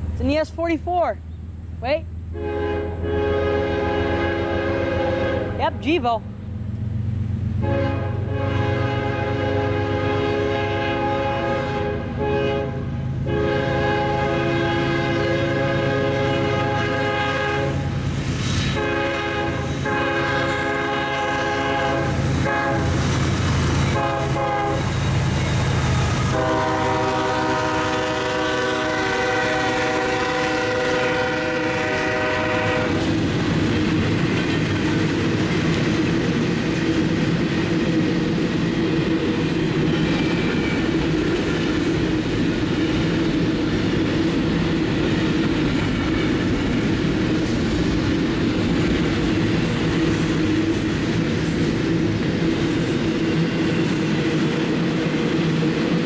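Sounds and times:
locomotive air horn blasts: 0:02.3 - 0:05.7, 0:07.6 - 0:18.0, 0:18.7 - 0:23.0, 0:23.9 - 0:25.0, 0:26.3 - 0:33.0
train wheels clicking over rail joints: 0:32.8 - 0:56.0.

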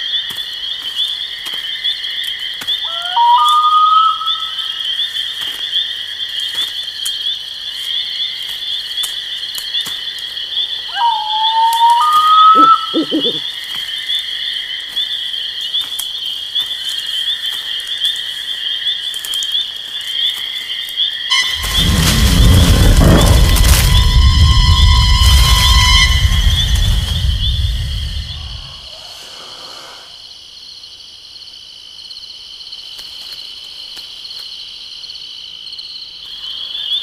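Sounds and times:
frogs and insects trilling: 0:00.0 - 0:37.0
two-note rising whistle: 0:21.3 - 0:28.8.

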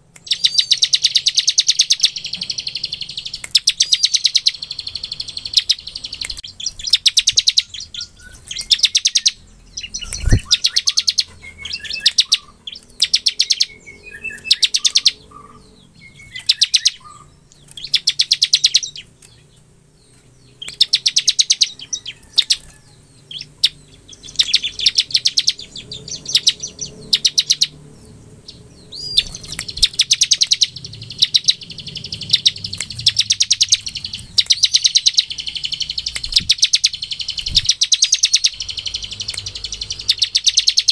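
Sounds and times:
bird rattling trill: 0:00.2 - 0:19.4, 0:28.6 - 0:40.9.

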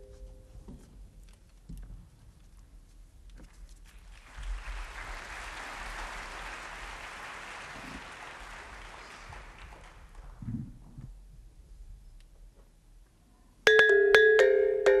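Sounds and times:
audience applauding: 0:03.9 - 0:10.5.

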